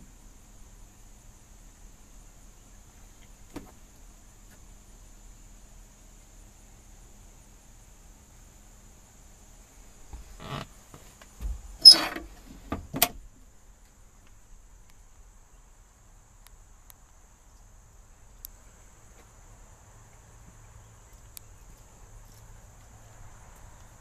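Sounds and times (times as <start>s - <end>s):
glove box door clunk: 11.4s - 13.2s
tiny ticks: 13.8s - 15.0s, 16.4s - 17.7s, 18.4s - 19.4s, 21.0s - 24.0s.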